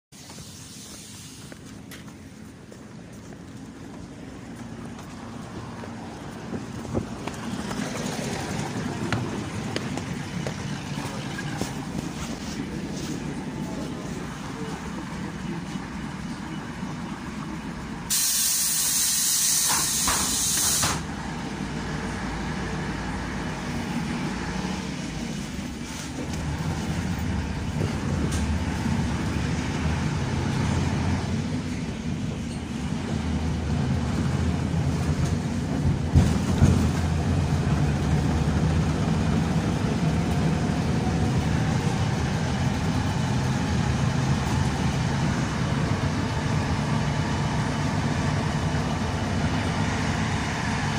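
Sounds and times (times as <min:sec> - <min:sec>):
bus engine driving: 0:00.1 - 0:50.9
bus doors air hiss: 0:00.2 - 0:01.6, 0:18.1 - 0:21.1.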